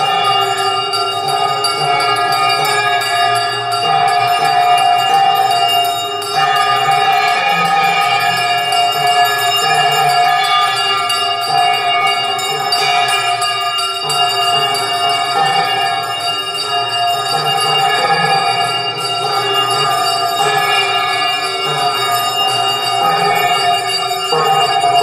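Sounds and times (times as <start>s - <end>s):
music: 0.0s - 25.0s
temple bells ringing: 0.0s - 25.0s.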